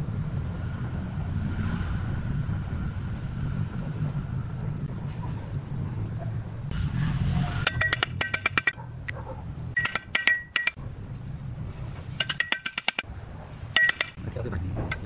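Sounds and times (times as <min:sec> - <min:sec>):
metal blade clinking on brick: 0:07.7 - 0:08.8, 0:09.8 - 0:10.8, 0:12.2 - 0:13.1, 0:13.8 - 0:14.2.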